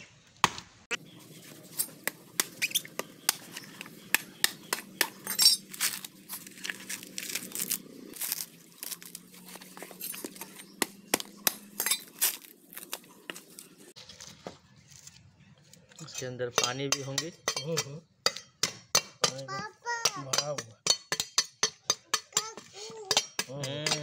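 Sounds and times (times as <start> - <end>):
coconut fibres tearing: 1.5 - 14.3.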